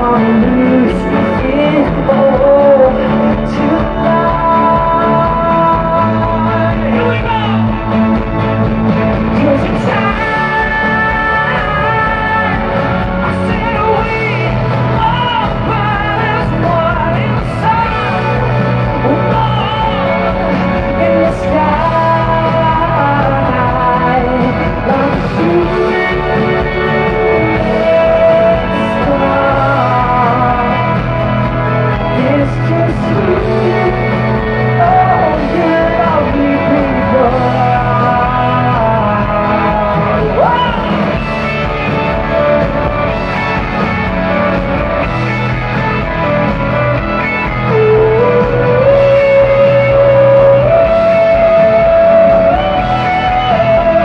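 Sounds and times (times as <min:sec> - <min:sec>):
man singing into a microphone: 0:00.0 - 0:08.0, 0:09.2 - 0:41.4, 0:47.6 - 0:54.0
instrumental backing music: 0:00.0 - 0:54.0.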